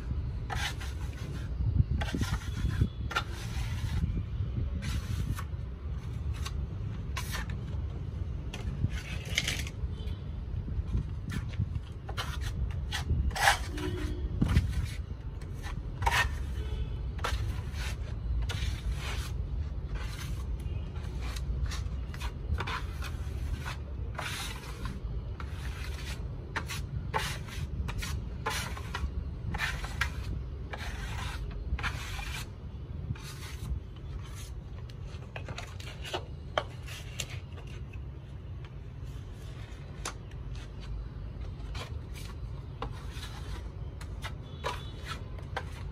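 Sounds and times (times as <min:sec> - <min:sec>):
trowel scraping wall putty: 0:00.4 - 0:07.8, 0:08.6 - 0:09.8, 0:11.2 - 0:16.6, 0:17.2 - 0:34.6, 0:41.7 - 0:45.9.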